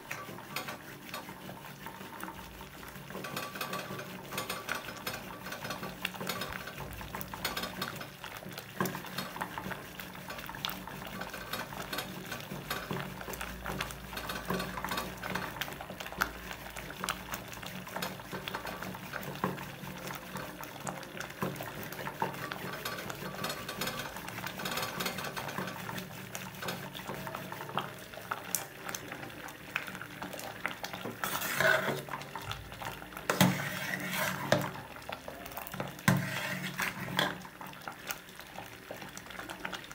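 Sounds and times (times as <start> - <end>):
wooden stick scraping a pot: 31.0 - 32.2, 33.2 - 34.8, 35.8 - 37.4.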